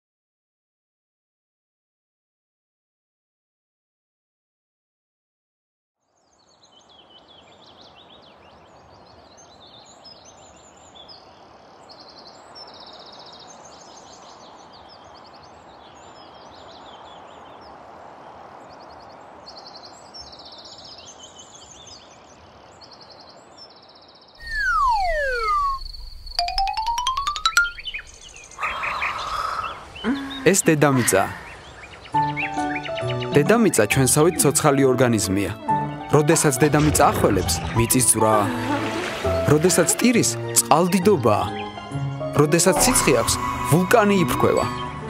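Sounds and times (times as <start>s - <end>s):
birds chirping and trilling: 6.1s - 45.0s
cartoon descending whistle: 24.4s - 26.4s, 42.8s - 44.0s.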